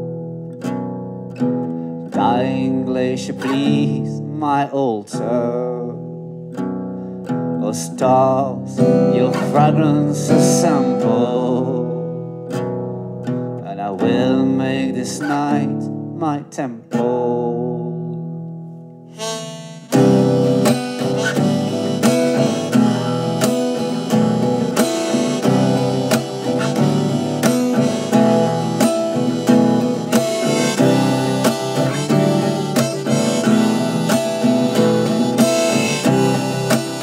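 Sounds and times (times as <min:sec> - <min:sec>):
strummed acoustic guitar: 0:00.0 - 0:37.0
harmonica melody: 0:07.9 - 0:12.3, 0:19.1 - 0:37.0.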